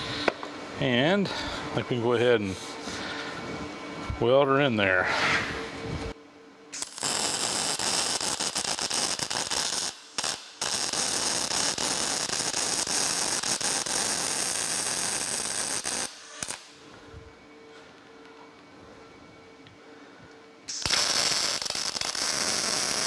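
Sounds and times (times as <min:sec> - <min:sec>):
welder arc crackling: 0:06.8 - 0:16.8, 0:20.7 - 0:23.0.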